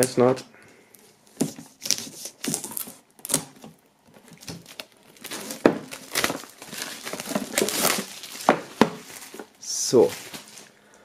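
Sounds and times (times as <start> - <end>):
plastic wrap crinkling and tearing: 1.3 - 10.8.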